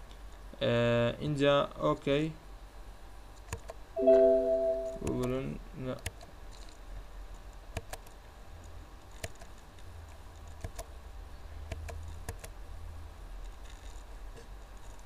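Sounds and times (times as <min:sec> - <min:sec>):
computer mouse clicking: 0:03.5 - 0:03.8, 0:07.7 - 0:08.1, 0:09.1 - 0:09.5, 0:10.4 - 0:10.9, 0:11.7 - 0:12.5.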